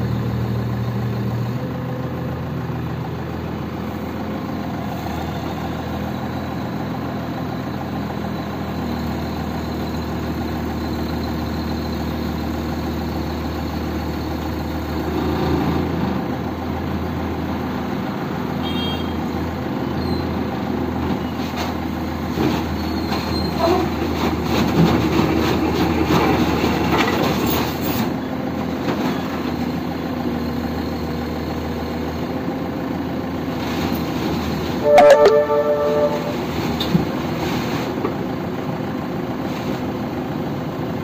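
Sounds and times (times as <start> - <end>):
excavator engine under load: 0.0 - 41.0
steel tracks knocking and squeaking: 21.2 - 28.2.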